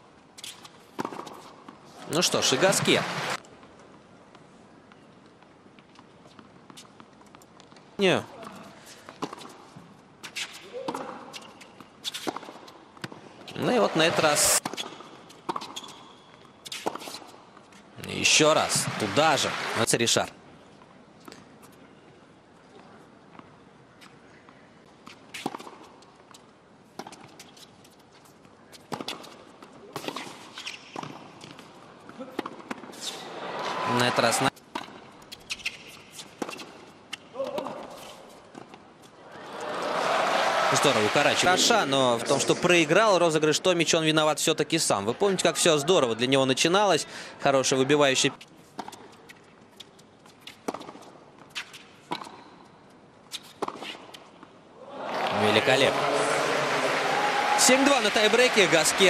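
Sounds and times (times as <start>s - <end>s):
ball bouncing on hard court: 18.6s - 19.5s.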